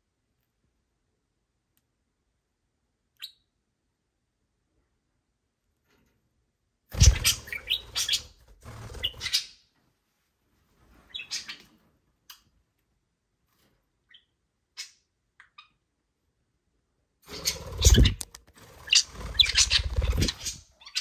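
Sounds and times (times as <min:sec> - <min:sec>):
wings fluttering: 0:06.9 - 0:09.4, 0:17.3 - 0:21.0
budgerigars chirping: 0:07.0 - 0:08.4, 0:18.9 - 0:21.0.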